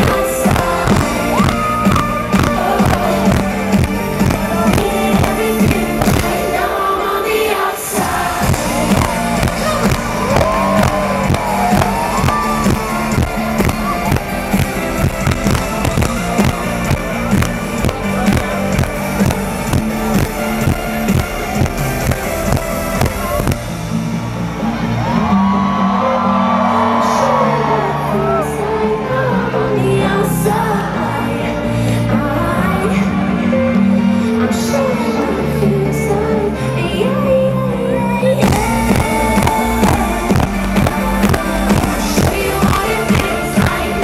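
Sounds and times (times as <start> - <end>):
bass: 0.0 - 6.6, 8.0 - 44.0
electronic pop music over loudspeakers: 0.0 - 44.0
steady kick drum: 8.4 - 23.7.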